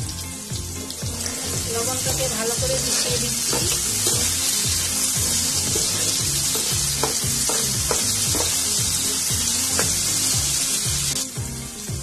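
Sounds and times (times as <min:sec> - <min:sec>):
background music: 0:00.0 - 0:12.0
potatoes and onion sizzling in oil: 0:00.0 - 0:12.0
wooden spatula scraping a pan: 0:02.8 - 0:04.5, 0:05.1 - 0:08.6.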